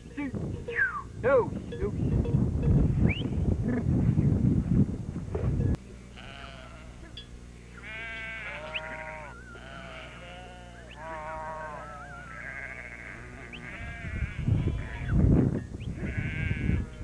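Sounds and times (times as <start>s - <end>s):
sheep bleating: 5.8s - 7.2s, 7.8s - 15.2s, 16.0s - 17.0s.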